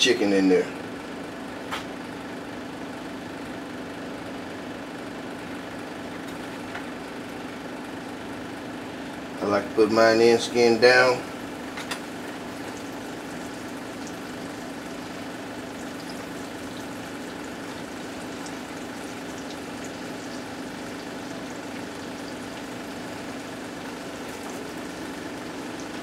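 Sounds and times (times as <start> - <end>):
chicken frying in hot oil: 11.0 - 26.0.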